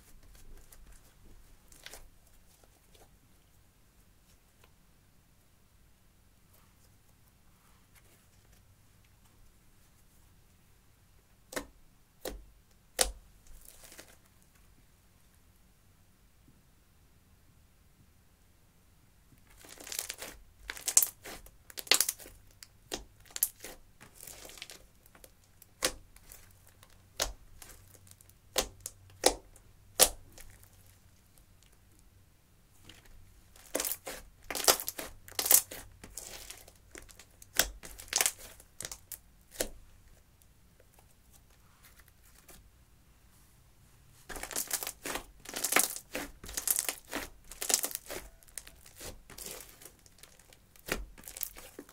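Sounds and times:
slime wet pops and crackles: 0:33.6 - 0:39.7.

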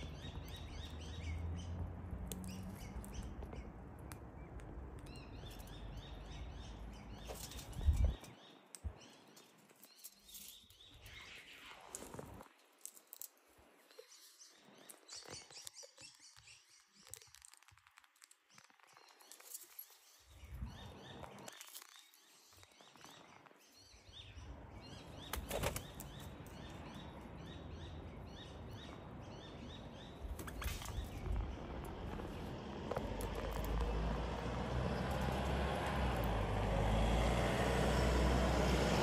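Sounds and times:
birds chirping: 0:00.0 - 0:12.4, 0:13.0 - 0:17.8, 0:18.4 - 0:39.0
wings fluttering: 0:25.2 - 0:26.3, 0:30.2 - 0:34.0.

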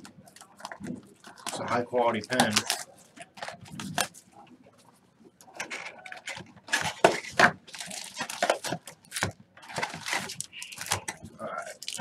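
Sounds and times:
shrink wrap crinkling: 0:00.0 - 0:04.3, 0:05.5 - 0:12.0.

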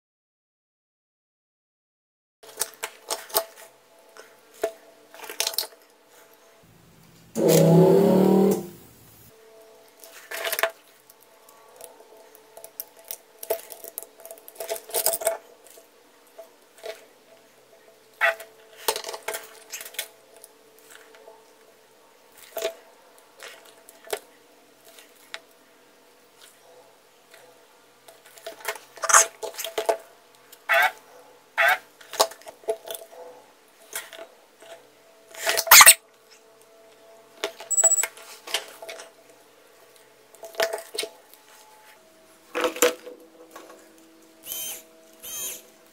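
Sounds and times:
faint steady hum: 0:05.8 - 0:10.2
hand tools clicking and clinking: 0:37.7 - 0:38.1.

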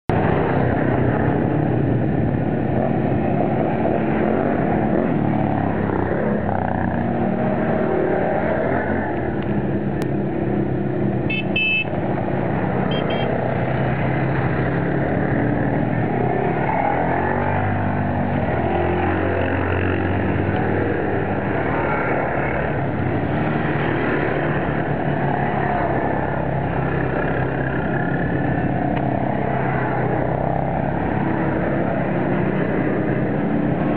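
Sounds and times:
quad bike engine: 0:00.1 - 0:33.9
high beeps: 0:12.9 - 0:13.3.

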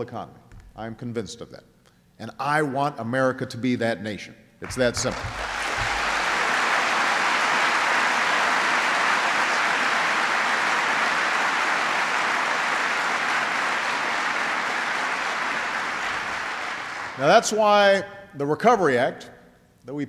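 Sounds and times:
audience applauding: 0:04.6 - 0:17.4.

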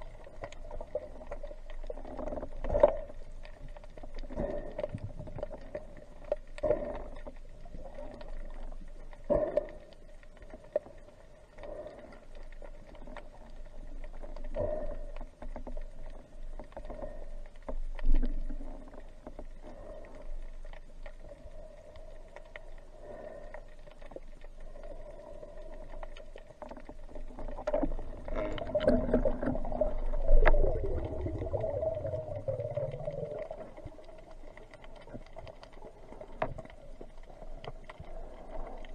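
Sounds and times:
underwater hum: 0:00.0 - 0:38.9
low rumble: 0:27.6 - 0:38.9.

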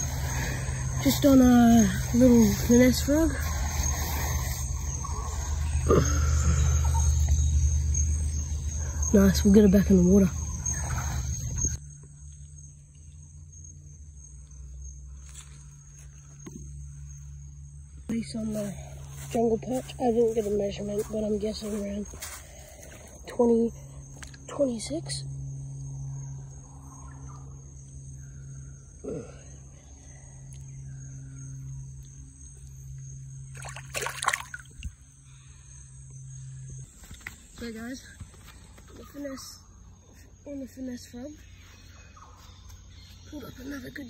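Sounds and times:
shrill insect drone: 0:00.0 - 0:44.0
water splashing: 0:33.5 - 0:34.9.

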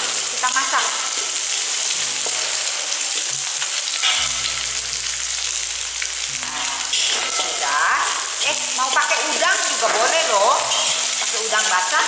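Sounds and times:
food sizzling in a wok: 0:00.0 - 0:12.0
metal spatula scraping a pan: 0:03.6 - 0:11.3.

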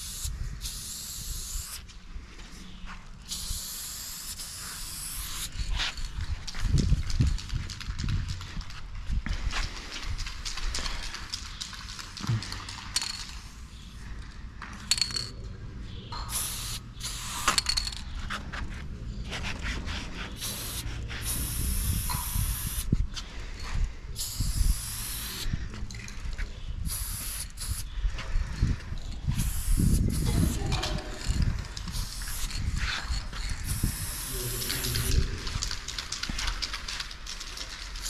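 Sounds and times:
spray-paint can hissing: 0:00.0 - 0:01.8, 0:03.3 - 0:06.0, 0:16.2 - 0:18.0, 0:20.3 - 0:22.9, 0:24.2 - 0:25.5, 0:26.8 - 0:27.9, 0:29.4 - 0:35.2.

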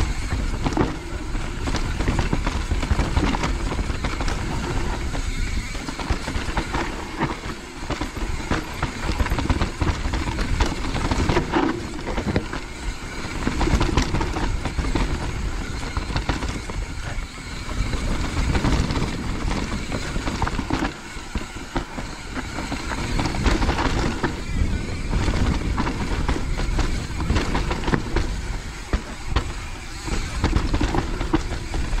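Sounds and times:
bike rattling and clattering: 0:00.0 - 0:32.0
tyres rumbling over dirt: 0:00.0 - 0:32.0.

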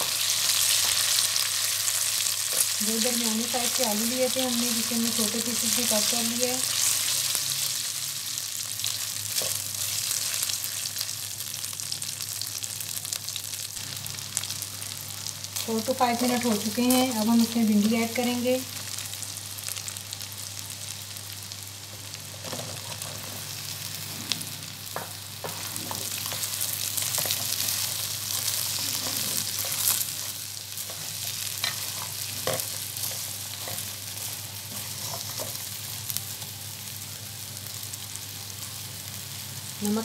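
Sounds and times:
oil sizzling in a pan: 0:00.0 - 0:40.0.

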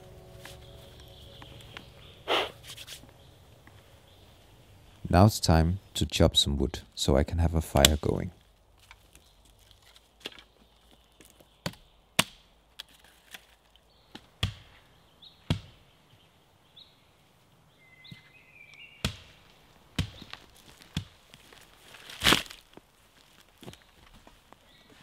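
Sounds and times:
axe chopping wood: 0:11.6 - 0:12.5, 0:14.1 - 0:14.8, 0:15.5 - 0:15.8, 0:19.0 - 0:19.4, 0:20.0 - 0:21.2.

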